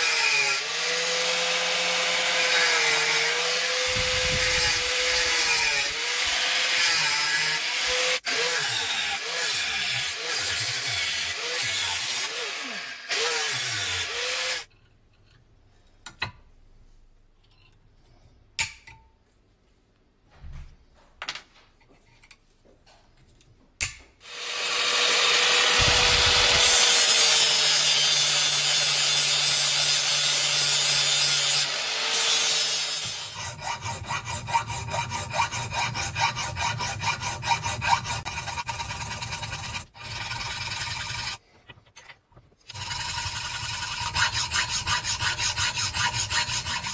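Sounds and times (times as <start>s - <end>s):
angle grinder grinding steel: 0.0s - 14.7s, 24.2s - 41.4s, 42.7s - 46.9s
file rasping on steel: 0.0s - 15.4s, 24.3s - 41.4s, 42.7s - 46.9s.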